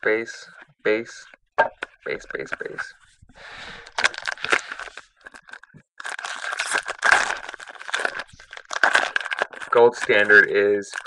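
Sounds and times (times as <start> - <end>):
foil wrapper crinkling and tearing: 3.8 - 11.0.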